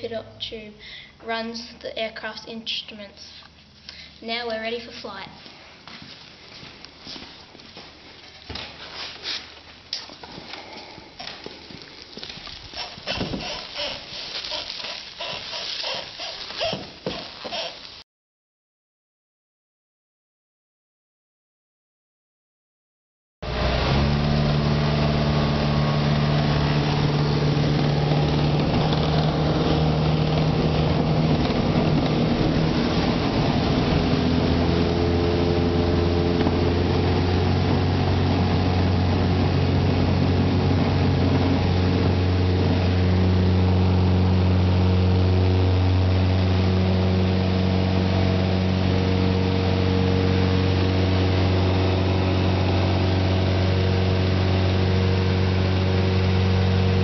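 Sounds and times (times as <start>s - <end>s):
light aircraft engine and propeller: 23.5s - 57.0s.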